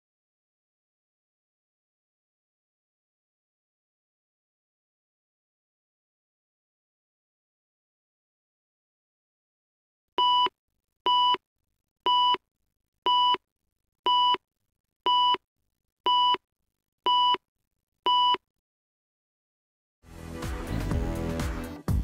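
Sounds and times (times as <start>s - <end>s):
opening theme music: 20.1s - 22.0s.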